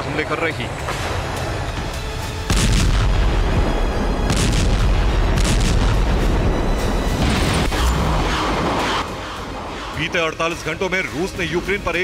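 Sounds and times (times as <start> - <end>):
background music: 0.0 - 12.0
explosions: 2.5 - 10.2.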